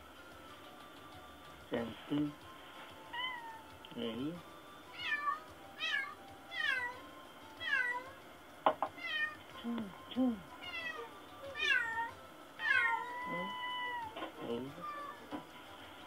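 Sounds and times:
cat meowing: 4.9 - 7.0, 7.6 - 8.1, 9.0 - 9.4, 10.6 - 14.2, 14.8 - 15.2.

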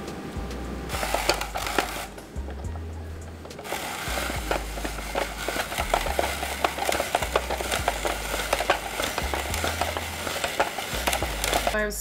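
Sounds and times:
background music with bass line: 0.0 - 12.0
spiralizer clicks and crackles: 0.9 - 11.9.

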